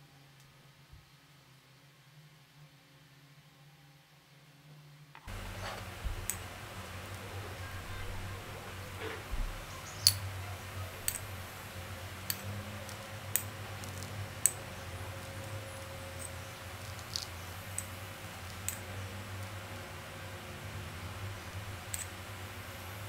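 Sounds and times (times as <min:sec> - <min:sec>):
low steady hum: 0:05.3 - 0:23.0
metal teaspoon clicking: 0:09.9 - 0:10.2, 0:11.0 - 0:11.4, 0:12.2 - 0:14.8, 0:15.4 - 0:18.9, 0:21.9 - 0:22.2.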